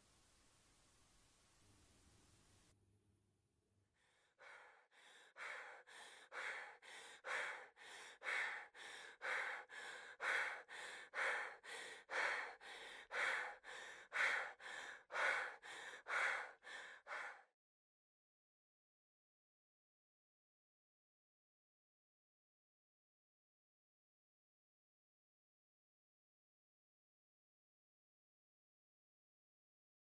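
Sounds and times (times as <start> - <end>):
heavy rhythmic breathing: 4.0 - 17.5.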